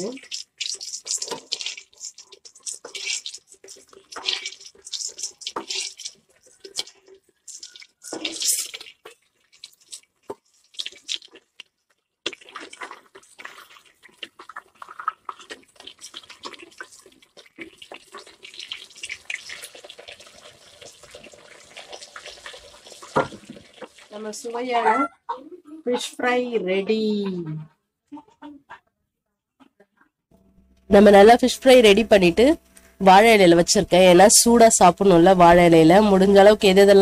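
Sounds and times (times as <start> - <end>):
spoon strokes in pan: 0.0 - 11.4, 12.4 - 24.2
fish sizzling in hot oil: 0.0 - 24.8.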